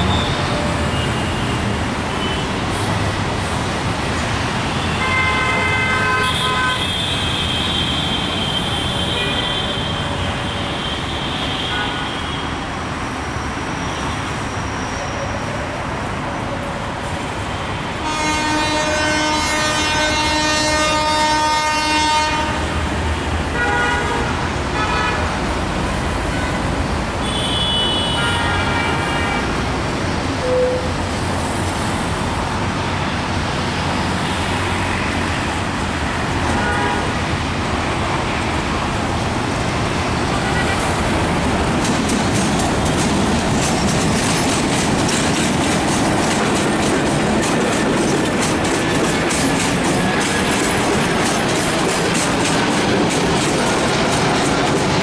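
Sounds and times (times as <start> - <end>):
locomotive horn: 4.8 - 12.5, 18.0 - 22.6, 23.5 - 25.3, 26.3 - 29.5, 36.5 - 37.2
train wheels clattering over rail joints: 41.2 - 55.0.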